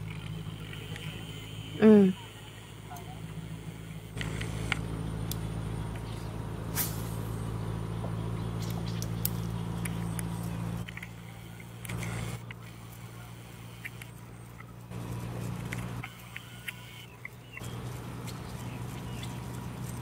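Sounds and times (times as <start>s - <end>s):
motor humming: 0.0s - 20.0s
sharp clicks: 4.0s - 6.1s, 8.6s - 14.7s, 15.6s - 18.4s.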